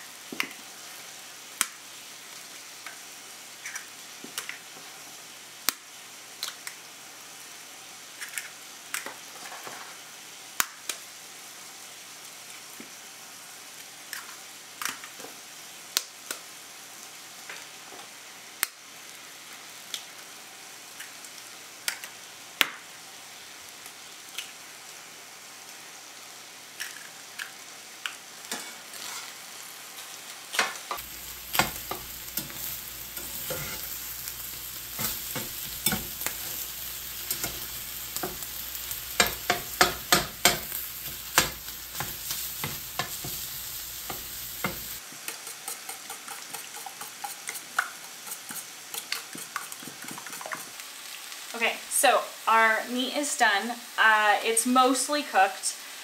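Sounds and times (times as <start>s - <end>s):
beef sizzling in a skillet: 0.0s - 56.0s
metal spatula scraping: 28.5s - 29.4s, 31.0s - 50.7s.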